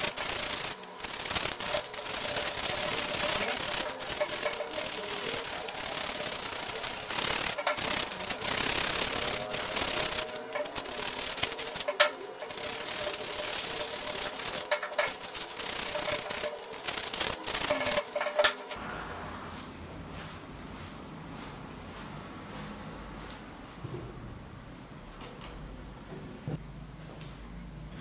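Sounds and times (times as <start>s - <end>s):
sandpaper rasping on steel: 0.0s - 18.8s.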